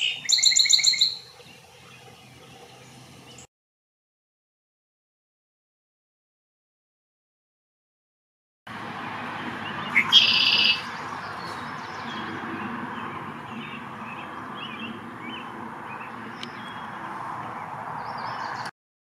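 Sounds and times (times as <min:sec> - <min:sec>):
bird song with buzzy trill: 0:00.0 - 0:03.5, 0:09.4 - 0:18.7.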